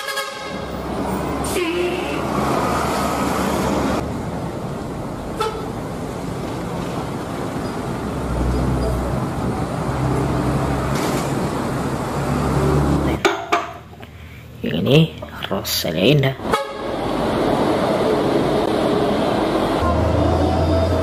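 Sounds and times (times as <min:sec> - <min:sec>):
bus horn toot: 0:00.0 - 0:02.4, 0:05.4 - 0:05.7, 0:16.4 - 0:17.0
bus engines running: 0:00.0 - 0:15.1, 0:16.0 - 0:21.0
traffic rumble: 0:00.0 - 0:21.0.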